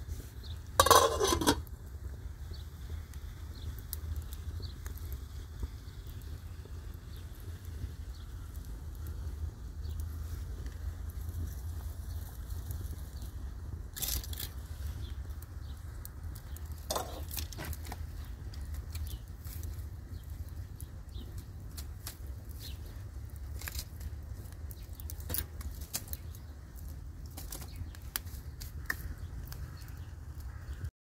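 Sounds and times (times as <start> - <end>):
wood fire crackling: 0.0 - 30.9
sticks laid on fire: 0.2 - 1.8, 8.6 - 30.5.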